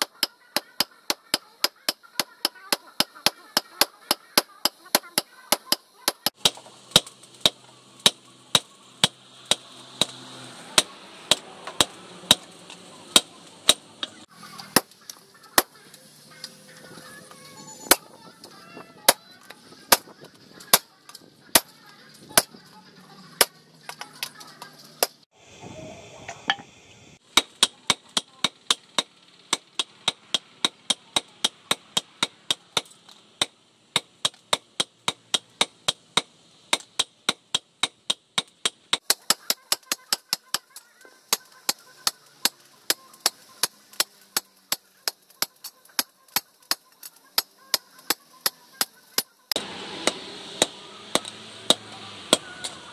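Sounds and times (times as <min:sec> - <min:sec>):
hammer striking hot steel on anvil: 0:00.0 - 0:12.5, 0:27.4 - 0:52.8.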